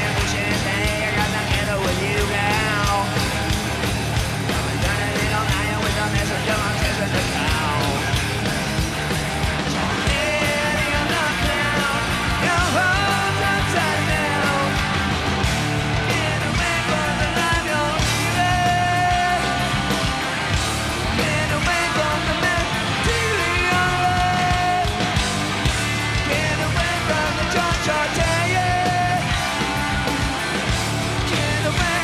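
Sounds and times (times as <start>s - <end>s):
bass guitar: 0.0s - 32.0s
distorted electric guitars: 0.0s - 32.0s
drums: 0.0s - 32.0s
hard rock band playing live: 0.0s - 32.0s
person singing: 4.6s - 8.1s, 9.7s - 15.1s, 16.0s - 20.0s, 21.1s - 25.1s, 26.2s - 30.2s, 31.2s - 32.0s.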